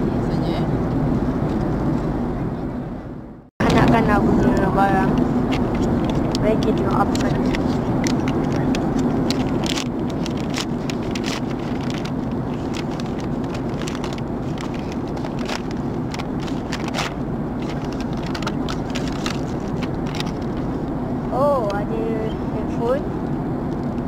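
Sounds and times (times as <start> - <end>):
airliner cabin drone: 0.0 - 24.0
paper bag crinkling: 7.1 - 20.8.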